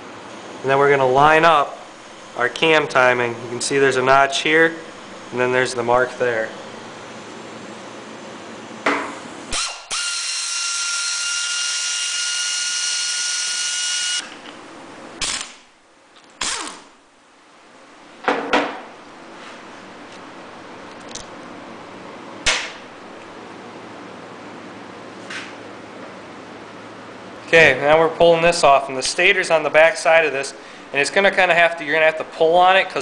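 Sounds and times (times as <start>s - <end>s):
cordless drill whining: 9.5s - 14.4s.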